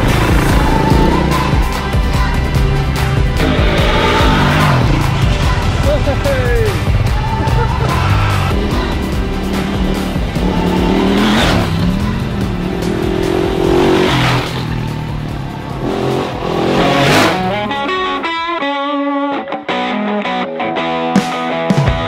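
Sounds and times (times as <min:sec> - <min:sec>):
motorcycles riding past: 0:00.0 - 0:17.8
background music: 0:00.0 - 0:22.0
plucked guitar: 0:16.9 - 0:22.0.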